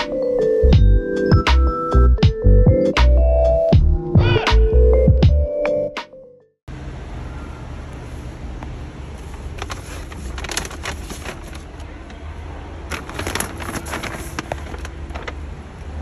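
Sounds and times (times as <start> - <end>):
low rumble of traffic: 6.7 - 16.0
rapid clicks and crackles: 9.6 - 11.9, 12.9 - 15.4.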